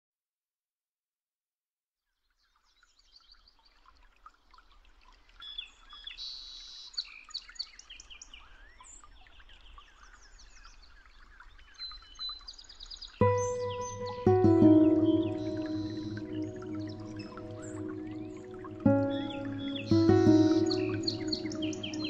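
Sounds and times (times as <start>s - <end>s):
birds chirping and whistling: 13.2s - 22.0s.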